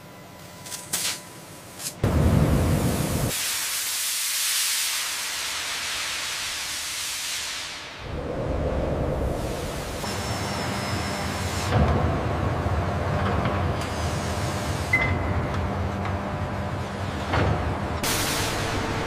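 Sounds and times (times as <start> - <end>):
steam hissing: 2.1 - 8.3, 9.0 - 11.7, 18.0 - 19.0
loud low noise: 7.9 - 10.1, 18.0 - 19.0.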